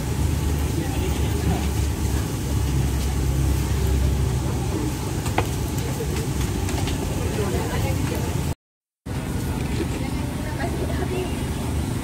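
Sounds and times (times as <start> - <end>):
faint crowd chatter: 3.6 - 12.0.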